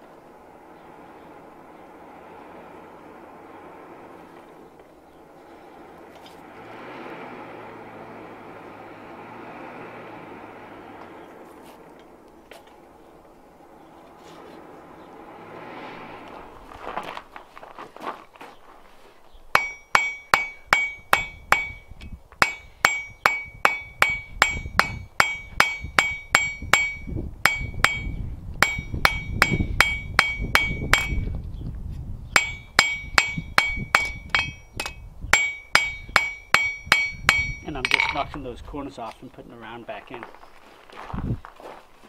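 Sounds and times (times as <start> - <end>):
hammer striking steel on anvil: 19.6 - 31.3, 32.4 - 38.3.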